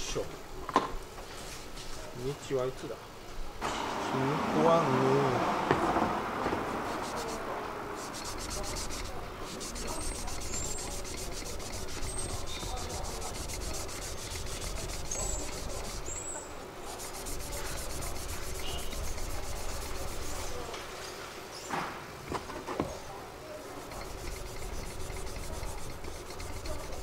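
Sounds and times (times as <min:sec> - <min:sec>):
knife scraping on whetstone: 0:08.0 - 0:20.6, 0:23.8 - 0:27.0.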